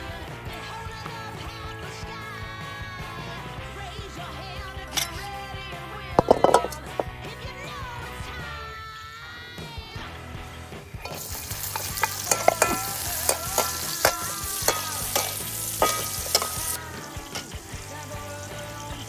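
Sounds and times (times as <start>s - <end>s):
metal ladle scraping a wok: 4.9s - 5.3s, 6.2s - 7.1s, 11.0s - 17.7s
vegetables sizzling in hot oil: 11.0s - 19.0s.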